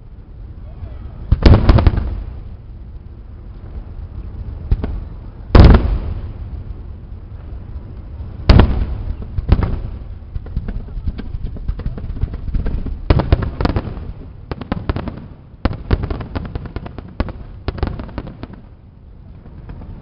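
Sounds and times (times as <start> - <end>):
faint firework bangs: 0.6 - 2.7, 4.6 - 20.0
firework shells booming: 1.3 - 2.6, 4.6 - 6.8, 8.3 - 18.8
rapid crackling pops: 4.6 - 18.8.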